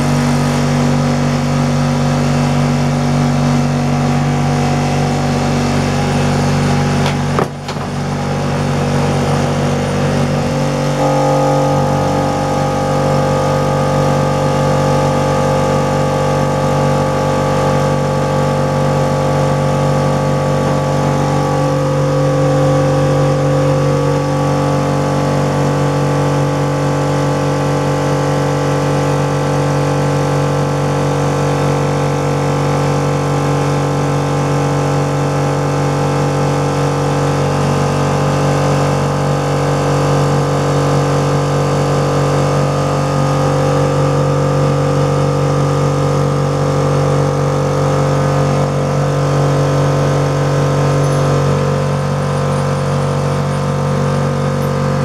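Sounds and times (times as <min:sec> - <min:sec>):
air compressor droning whine: 0:00.0 - 0:55.0.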